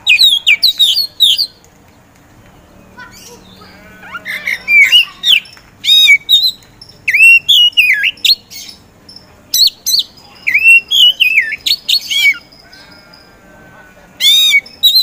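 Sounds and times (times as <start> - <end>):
bird singing whistled phrases: 0.0 - 1.6, 3.1 - 8.8, 9.5 - 12.5, 14.2 - 15.0.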